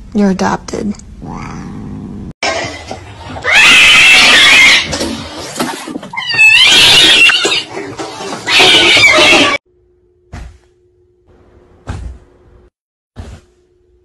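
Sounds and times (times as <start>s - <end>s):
cat screeching: 3.4s - 5.0s, 6.1s - 7.7s, 8.4s - 9.6s.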